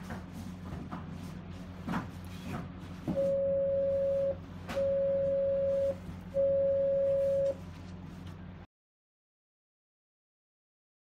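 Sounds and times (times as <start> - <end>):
low steady hum: 0.0 - 8.7
long keypad beeps: 3.2 - 7.6.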